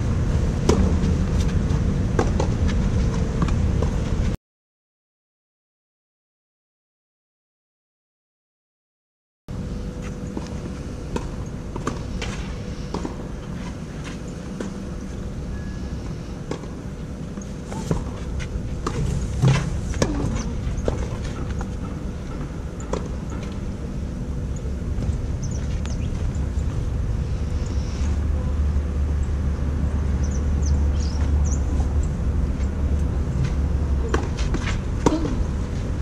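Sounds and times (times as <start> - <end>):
low background rumble: 0.0 - 4.4, 9.5 - 36.0.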